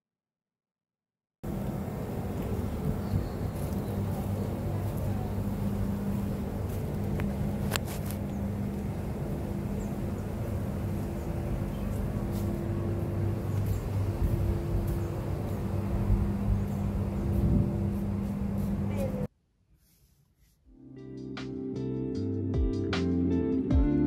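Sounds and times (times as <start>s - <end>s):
traffic engine hum: 1.4s - 19.3s.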